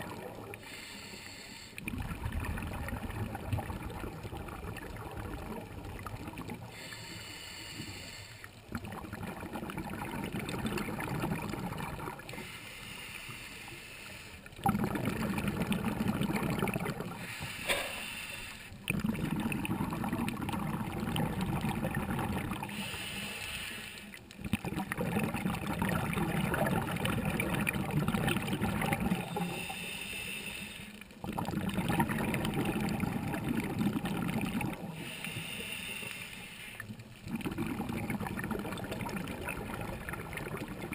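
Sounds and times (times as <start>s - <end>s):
exhaust bubbling underwater: 0.0s - 0.7s, 1.8s - 6.8s, 8.6s - 12.4s, 14.6s - 18.0s, 18.8s - 22.9s, 24.3s - 29.8s, 31.2s - 35.5s, 36.8s - 40.9s
regulator inhale hiss: 0.6s - 1.8s, 6.7s - 8.6s, 12.3s - 14.6s, 17.2s - 18.8s, 22.7s - 24.3s, 29.2s - 31.2s, 34.9s - 37.0s.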